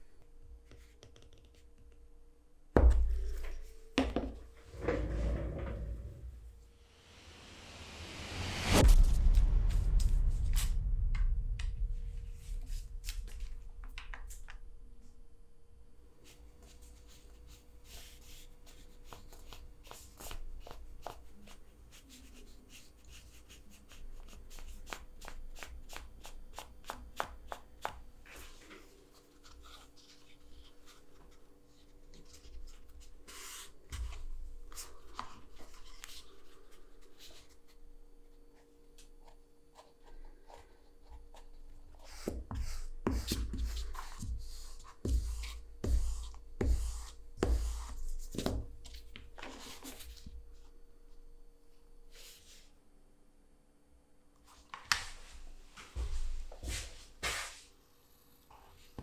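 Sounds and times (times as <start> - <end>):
deep thump: 8.5 - 13.9.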